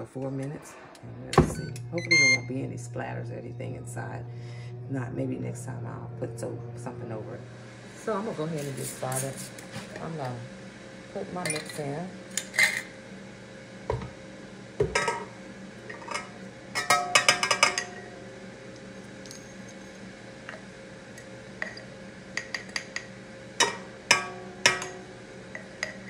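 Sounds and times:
glass jar clinking on metal bowl: 0:15.9 - 0:18.0.

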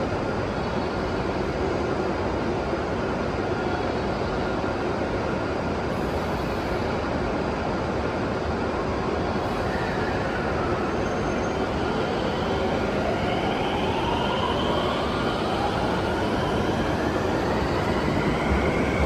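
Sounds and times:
electric train humming and hissing: 0:00.0 - 0:19.0.

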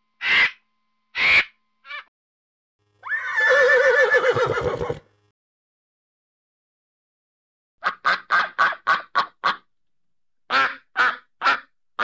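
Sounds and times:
horse whinnying: 0:03.0 - 0:05.0.

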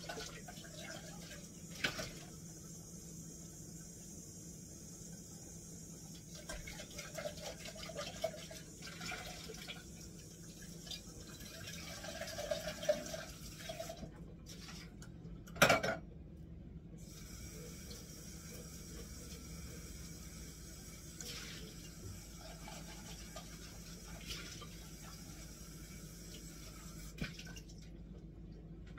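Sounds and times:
tap water running into sink: 0:06.0 - 0:14.9, 0:17.0 - 0:27.6.

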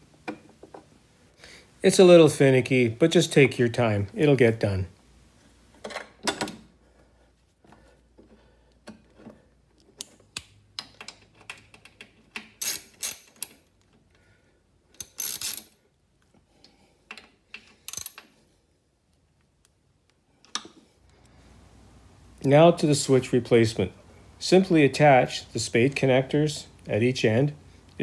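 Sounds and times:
socket ratchet clicking: 0:10.0 - 0:13.7, 0:14.9 - 0:15.7, 0:17.7 - 0:18.3.

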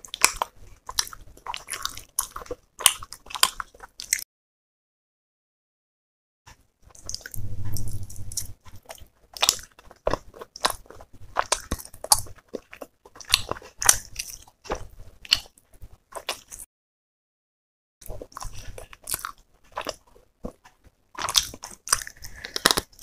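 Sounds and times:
person chewing food: 0:00.0 - 0:04.2, 0:06.5 - 0:16.7, 0:18.0 - 0:23.0
low hum: 0:07.3 - 0:08.8.

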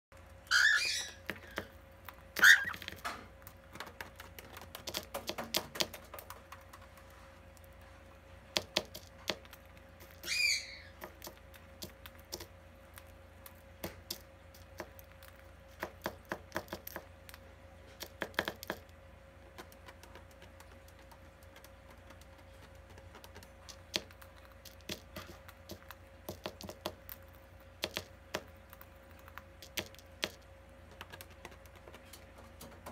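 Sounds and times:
birds husking seeds clicking: 0:00.1 - 0:07.8, 0:08.5 - 0:32.9
faint steady hum: 0:00.1 - 0:32.9
cockatiel chirp: 0:00.5 - 0:01.7, 0:02.4 - 0:02.9, 0:10.1 - 0:11.1
beaks tapping plastic cup: 0:02.4 - 0:07.0, 0:18.0 - 0:28.6.

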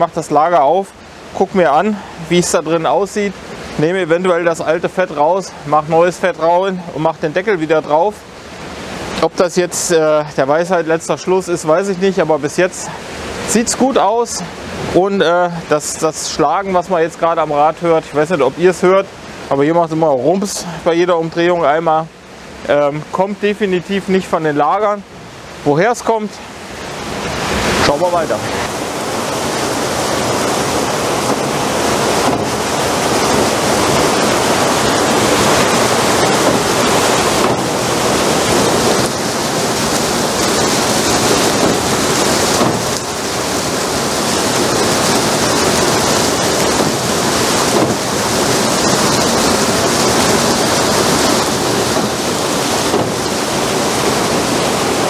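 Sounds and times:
water rushing onto water wheel: 0:00.0 - 0:55.0
water wheel dull knock: 0:31.2 - 0:43.2, 0:44.5 - 0:53.7.

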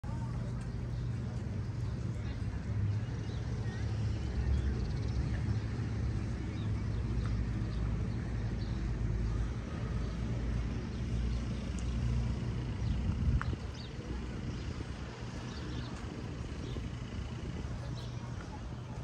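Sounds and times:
low street rumble: 0:00.0 - 0:19.0
faint chirps and ticks: 0:11.1 - 0:13.9.

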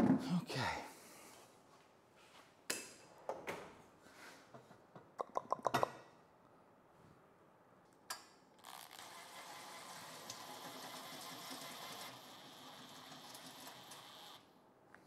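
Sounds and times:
small motor whirring: 0:08.6 - 0:14.5.

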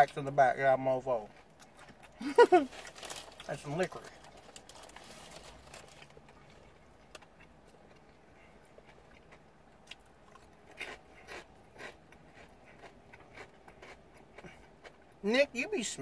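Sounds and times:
potato chip crunching: 0:01.6 - 0:06.3, 0:09.3 - 0:14.6.

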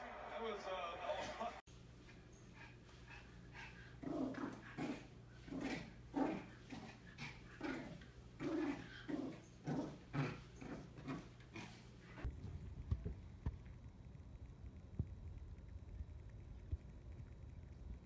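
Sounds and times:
cats growling: 0:03.5 - 0:12.3.

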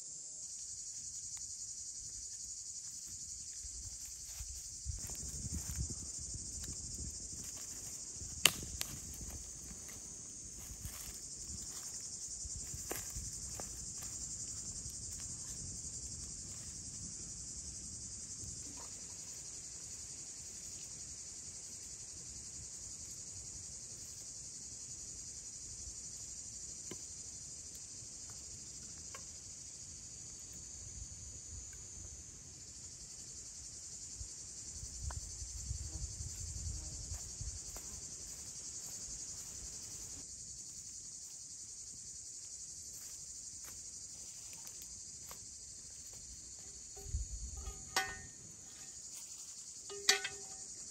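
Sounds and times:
insect chorus chirring: 0:00.0 - 0:50.9.

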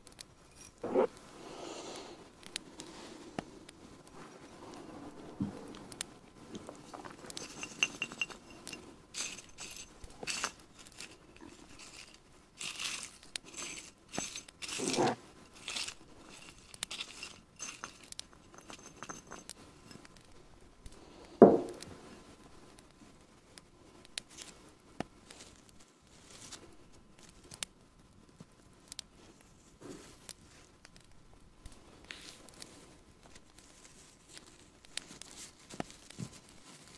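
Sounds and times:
rustling and crinkling: 0:00.0 - 0:36.9
light glass clinks: 0:07.4 - 0:11.0, 0:17.2 - 0:19.5
loud knock: 0:21.4 - 0:21.8.

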